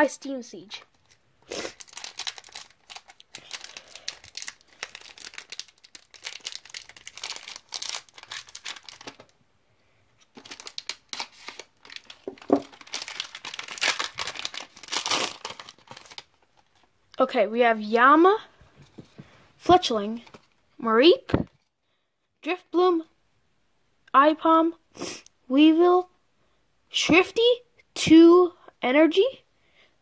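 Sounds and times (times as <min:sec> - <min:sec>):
foil wrapper crinkling: 0:00.9 - 0:09.3, 0:10.2 - 0:16.9.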